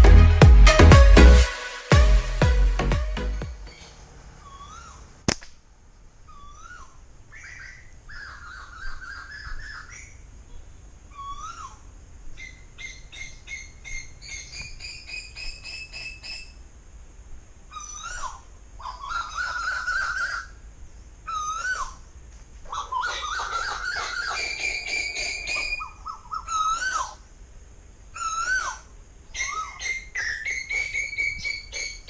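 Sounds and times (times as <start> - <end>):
bird calling whistled notes: 3.7 - 5.1, 6.3 - 10.2, 11.1 - 11.8, 12.4 - 16.6, 21.3 - 22.0, 22.7 - 27.2, 28.2 - 32.0.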